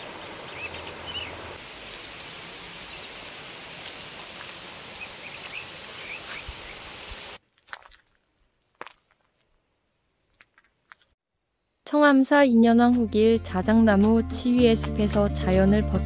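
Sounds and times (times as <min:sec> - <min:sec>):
bird chirps: 0:00.0 - 0:04.1, 0:05.0 - 0:06.8.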